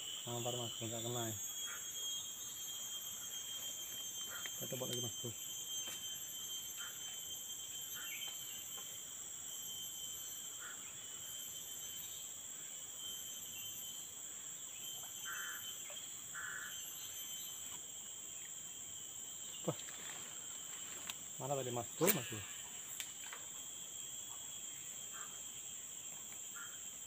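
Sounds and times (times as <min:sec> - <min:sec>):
forest insects shrilling: 0:00.0 - 0:27.0.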